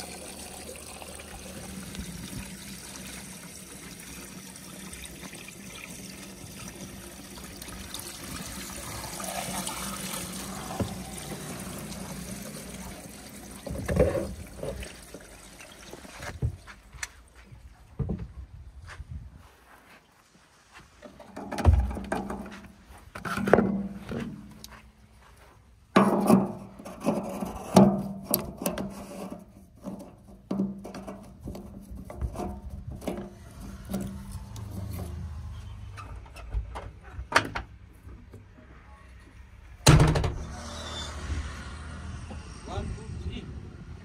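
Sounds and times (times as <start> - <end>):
bucket knocks and clunks: 8.8 - 15.3, 17.9 - 18.4, 21.1 - 24.5, 25.9 - 29.0, 29.8 - 34.1.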